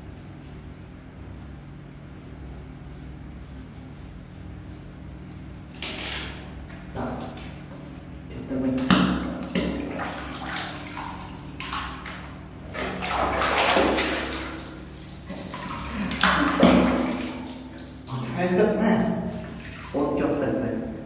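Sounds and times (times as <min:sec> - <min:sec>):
water splashing in plastic basin: 0:05.7 - 0:07.9, 0:08.5 - 0:20.2.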